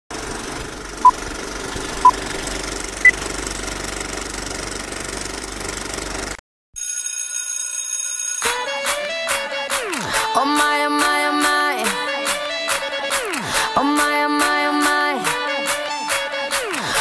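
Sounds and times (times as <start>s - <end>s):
film projector clatter: 0.1s - 6.4s.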